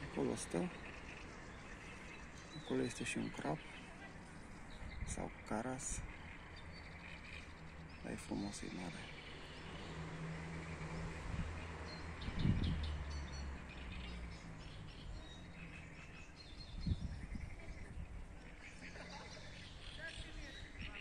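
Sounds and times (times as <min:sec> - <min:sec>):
birds chirping faintly: 0:00.0 - 0:21.0.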